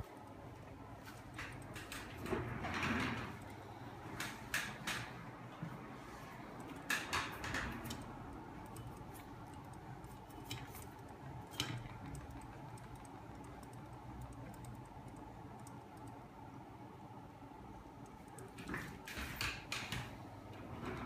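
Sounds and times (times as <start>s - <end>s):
sharp clicks and ticks: 6.6s - 16.3s, 18.0s - 18.6s.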